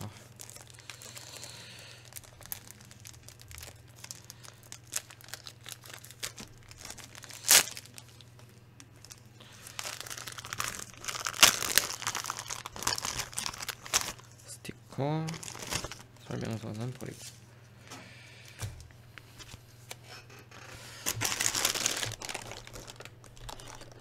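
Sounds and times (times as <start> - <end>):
plastic sleeve crinkling: 0.2 - 14.5, 15.2 - 17.1, 19.4 - 24.0
plastic ripping: 0.3 - 8.2, 9.0 - 14.3, 15.2 - 16.0, 19.9 - 24.0
paper rustling: 20.6 - 24.0.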